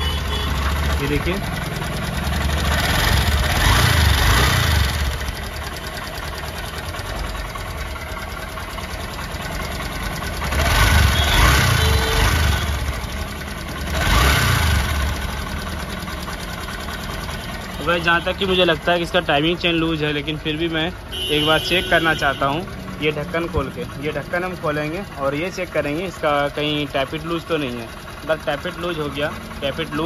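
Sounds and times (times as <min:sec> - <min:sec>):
engine revving: 0:00.0 - 0:05.4, 0:10.2 - 0:13.1, 0:13.7 - 0:15.5
motorcycle engine idling with ticking: 0:00.0 - 0:30.0.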